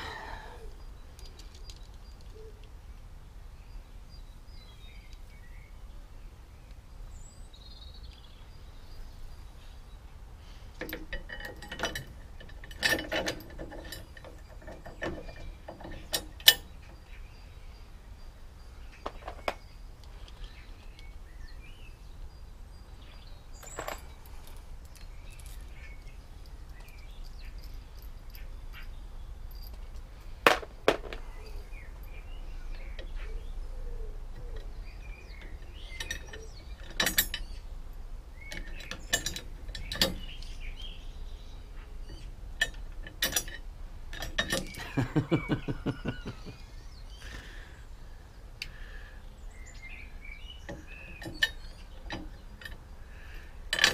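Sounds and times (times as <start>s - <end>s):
metallic clicks and clinks: 1.1s - 2.7s, 10.7s - 17.0s, 23.6s - 33.2s, 34.3s - 37.6s, 38.5s - 40.6s, 42.1s - 46.6s, 50.7s - 53.0s, 53.7s - 53.9s.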